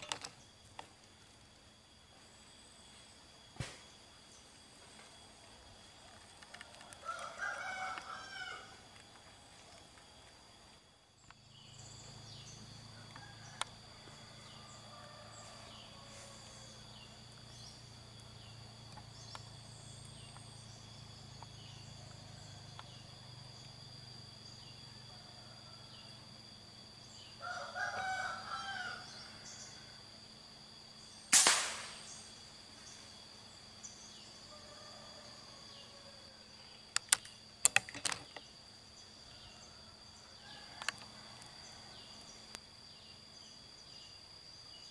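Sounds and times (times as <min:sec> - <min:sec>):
insect drone: 0:00.0 - 0:44.9
rooster crowing: 0:06.5 - 0:08.9, 0:12.8 - 0:17.0, 0:27.4 - 0:30.0, 0:34.4 - 0:36.5, 0:39.3 - 0:42.1
air rifle shot: 0:31.3 - 0:32.2
sharp clicks: 0:36.9 - 0:38.4.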